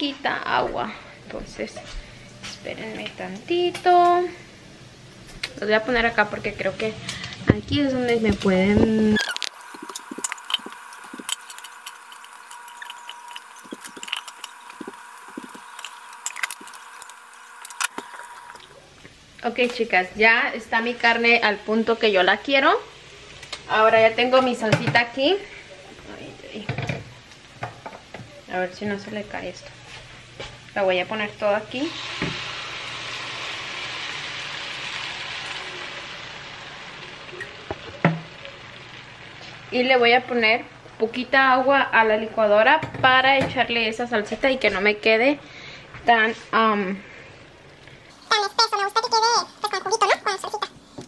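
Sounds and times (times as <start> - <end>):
faint steady hum: 0.0 - 51.0
salsa sizzling in frying pan: 8.9 - 25.6, 26.5 - 42.6
small clicks and crackles: 9.2 - 18.7.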